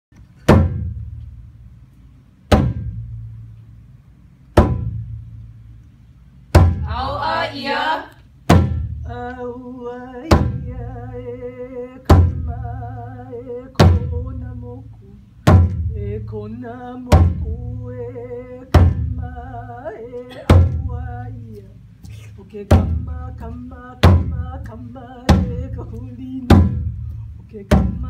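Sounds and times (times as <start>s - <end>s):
large drum booming: 26.4s - 27.0s.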